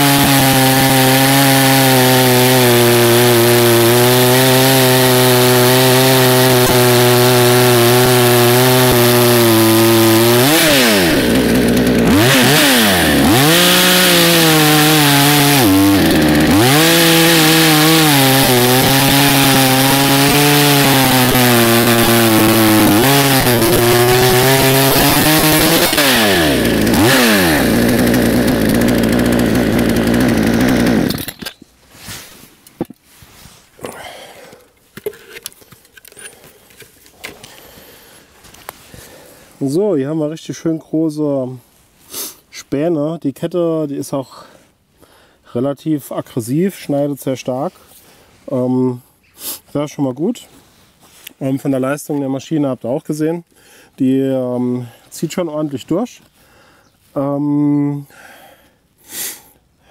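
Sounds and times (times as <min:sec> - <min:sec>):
chainsaw cutting log: 0:00.0 - 0:31.6.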